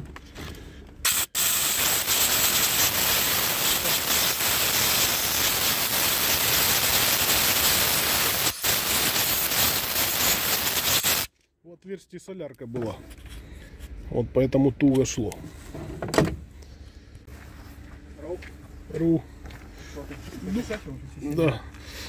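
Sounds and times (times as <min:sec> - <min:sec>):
compressed air hissing: 0:01.0 - 0:11.3.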